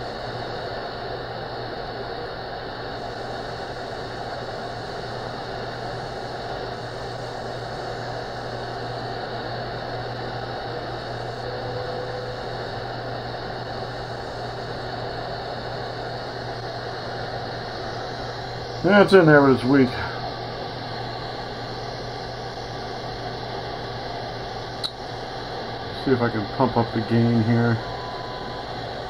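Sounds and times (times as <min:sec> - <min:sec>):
shortwave radio static: 0:00.0 - 0:29.0
low hum: 0:02.9 - 0:29.0
weak time signal: 0:11.1 - 0:13.4, 0:25.9 - 0:29.0.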